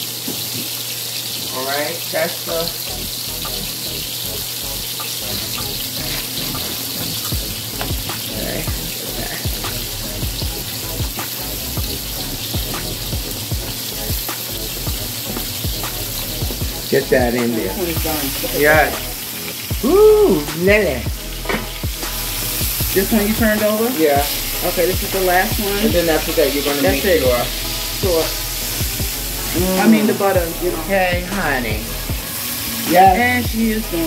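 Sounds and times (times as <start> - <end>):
steak sizzling in a pan: 0.0 - 34.0.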